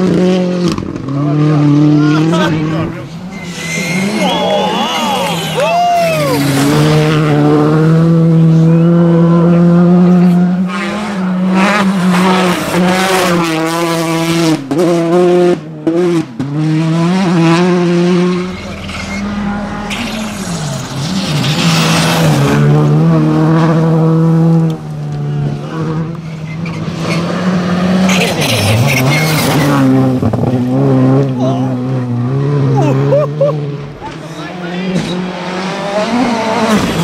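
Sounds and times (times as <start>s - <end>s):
rally car engines at high revs: 0.0s - 37.0s
gearshift breaks in engine sound: 16.8s - 23.2s.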